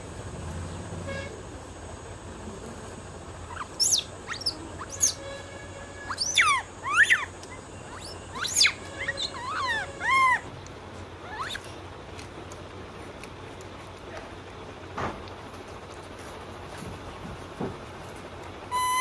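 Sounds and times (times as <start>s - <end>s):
birds chirping and whistling: 3.5s - 5.2s, 6.0s - 10.5s, 11.3s - 11.7s, 18.7s - 19.0s.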